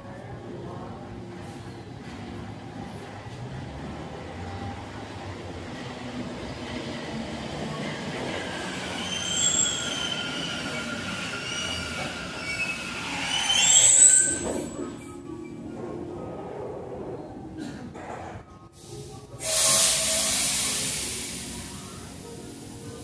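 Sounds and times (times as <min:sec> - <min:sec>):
train braking with squeals: 0:07.6 - 0:15.8, 0:19.4 - 0:22.2.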